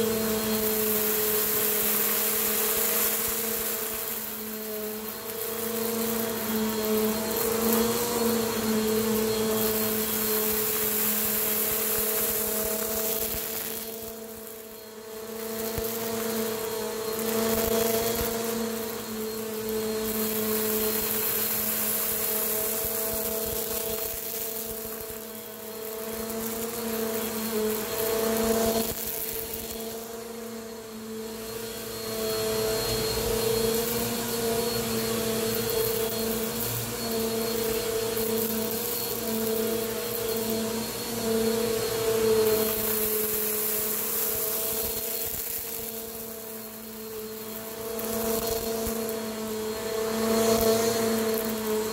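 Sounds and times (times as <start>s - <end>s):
vacuum cleaner on carpet: 0.0s - 51.9s.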